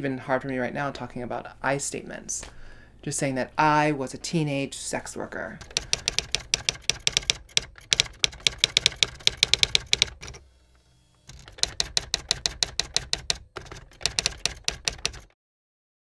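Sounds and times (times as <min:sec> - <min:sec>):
typewriter keystrokes: 0:05.6 - 0:10.4, 0:11.3 - 0:15.4.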